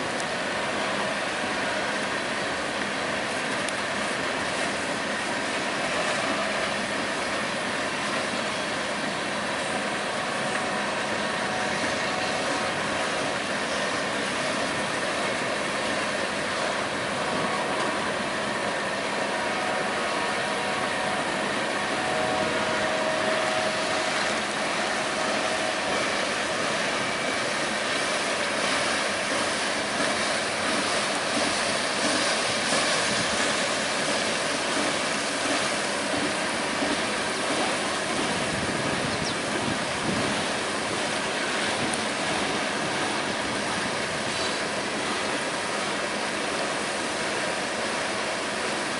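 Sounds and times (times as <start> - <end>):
freight train wheels rolling: 0.0 - 48.9.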